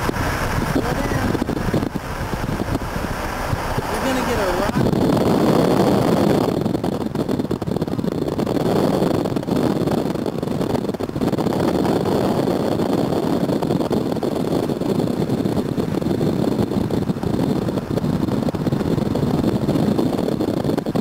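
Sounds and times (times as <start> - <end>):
car road and wind noise: 0.0 - 21.0.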